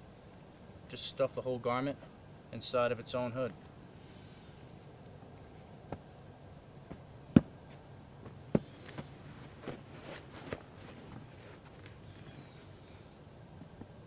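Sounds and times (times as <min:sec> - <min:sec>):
high insect drone: 0:00.0 - 0:14.0
body thumping on ground: 0:05.8 - 0:06.1, 0:06.8 - 0:12.0
clothing rustling: 0:08.3 - 0:12.3.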